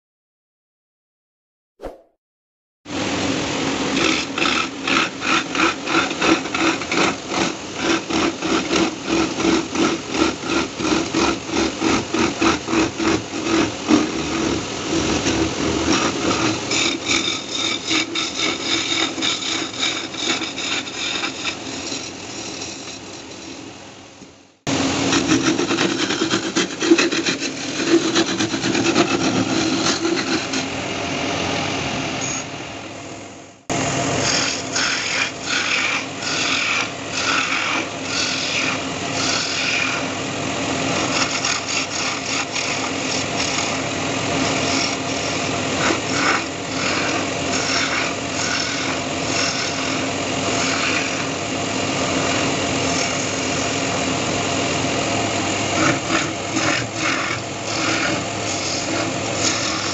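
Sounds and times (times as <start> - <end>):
wood lathe humming: 2.9 - 23.9, 24.7 - 31.6, 33.7 - 59.9
chisel shaving spinning wood: 3.0 - 23.8, 24.7 - 30.8, 33.7 - 59.9.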